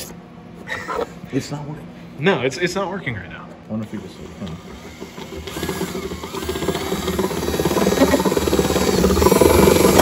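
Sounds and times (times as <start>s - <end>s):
drill cutting into plastic: 3.9s - 10.0s.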